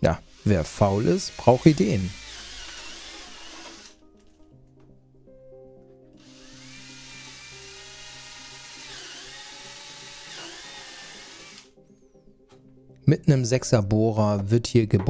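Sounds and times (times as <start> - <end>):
background music: 0.0 - 15.0
electric drill whining: 0.3 - 4.0, 6.2 - 11.7.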